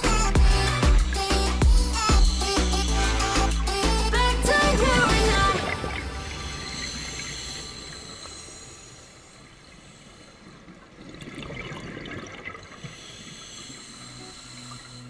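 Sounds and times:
background music: 0.0 - 7.8
underwater breath bubbling: 4.6 - 15.0.

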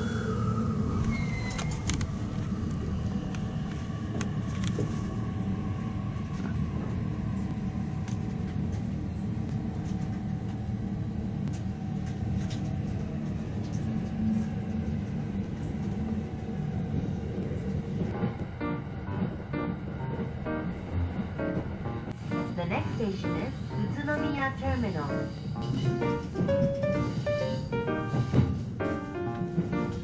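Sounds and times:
train running low rumble: 0.0 - 30.0.

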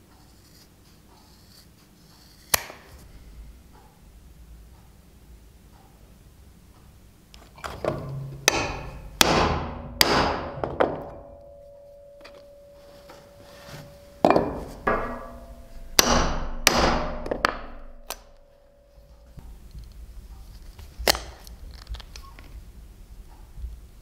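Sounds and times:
hammer striking steel punch: 7.8 - 18.8
metallic ring: 7.9 - 19.4.

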